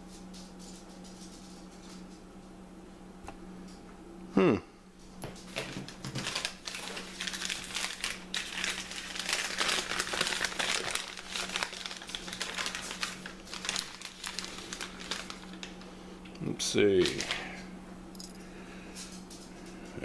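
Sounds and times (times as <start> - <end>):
newspaper crinkling and rustling: 5.6 - 15.9, 16.6 - 17.4.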